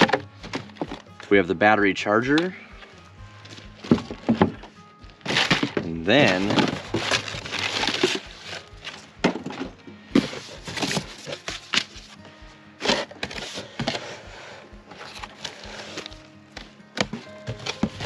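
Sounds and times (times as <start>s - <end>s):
cardboard packaging rustling: 3.4s - 12.2s, 14.9s - 18.0s.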